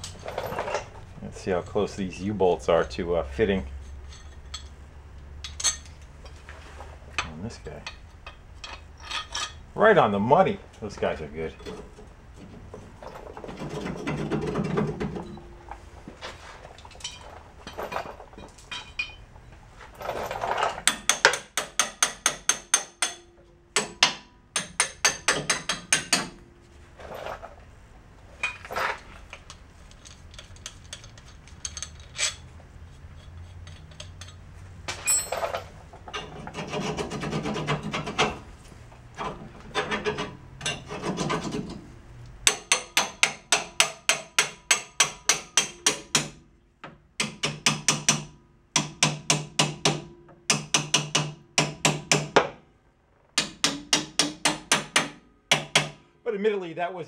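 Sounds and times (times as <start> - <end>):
metal clinks and scraping: 0.0 - 9.8, 11.4 - 24.0, 24.6 - 27.7, 28.3 - 46.2.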